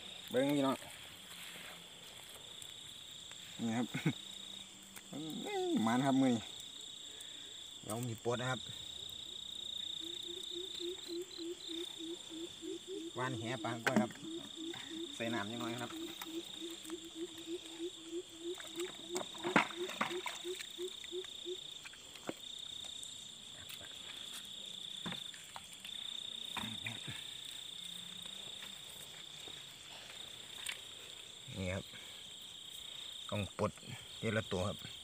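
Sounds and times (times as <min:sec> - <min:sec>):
cricket trilling: 0:00.0 - 0:35.0
frog calling in low pulses: 0:10.0 - 0:21.8.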